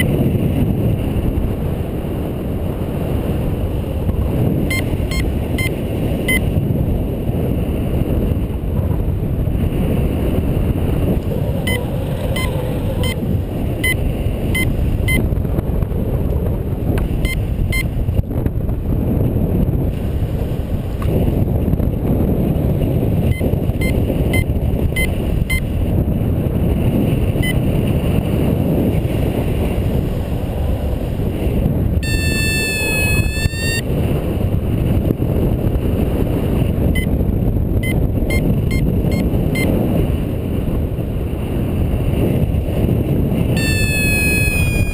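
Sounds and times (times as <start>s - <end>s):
wind buffeting microphone: 0.0s - 44.9s
short high beeps: 4.7s - 5.7s, 12.4s - 13.2s, 14.6s - 15.2s, 32.0s - 33.8s, 43.6s - 44.9s.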